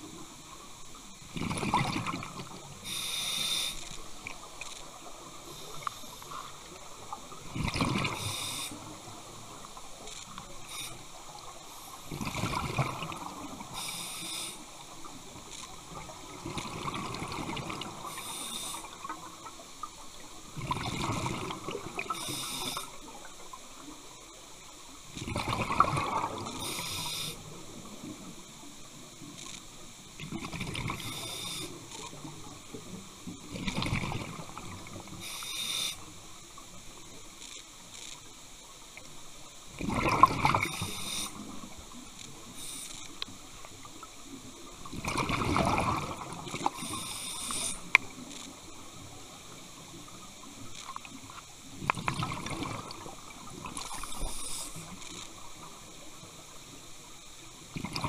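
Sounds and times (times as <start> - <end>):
exhaled bubbles rushing: 1.3 - 2.6, 7.4 - 8.2, 12.1 - 13.6, 16.3 - 18.0, 20.6 - 22.1, 25.2 - 26.5, 39.8 - 40.8, 44.9 - 46.8, 51.8 - 54.2, 57.8 - 58.0
regulator inhalation hiss: 2.8 - 4.0, 8.1 - 9.0, 10.6 - 12.2, 13.6 - 14.9, 18.0 - 19.1, 22.1 - 23.0, 26.6 - 27.6, 31.0 - 32.0, 35.1 - 36.2, 40.6 - 41.6, 42.5 - 43.2, 46.7 - 47.9, 53.8 - 55.0.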